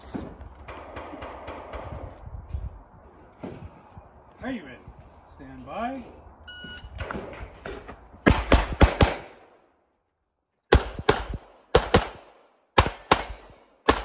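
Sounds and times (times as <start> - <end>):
pistol shots with echo: 8.2 - 9.4, 10.7 - 14.0.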